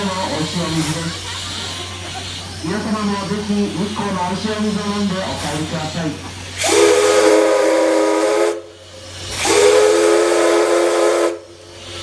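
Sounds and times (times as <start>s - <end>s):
steam hissing: 0.0s - 12.0s
steam whistle blasts: 6.6s - 11.6s.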